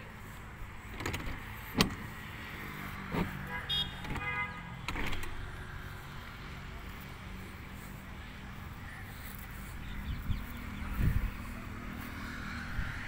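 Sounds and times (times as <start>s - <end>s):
metal door lock clicks and knocks: 1.0s - 2.0s, 4.9s - 5.4s.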